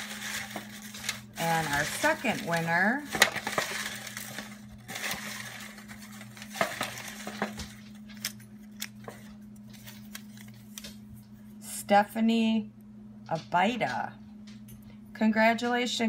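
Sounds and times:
paper slips rustling: 0.0s - 11.0s.

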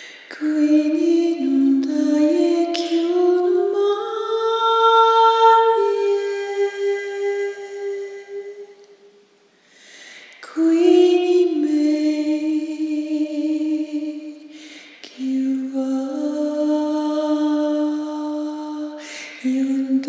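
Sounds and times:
singer breathing: 0.0s - 0.3s, 9.6s - 10.4s, 14.5s - 15.0s, 19.0s - 19.5s.

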